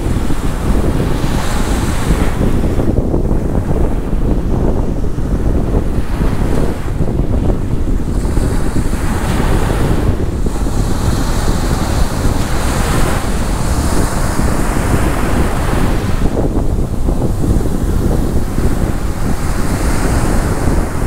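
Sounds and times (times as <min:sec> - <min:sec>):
surf washing up sandy beach: 0:00.0 - 0:21.0
wind buffeting microphone: 0:00.0 - 0:21.0.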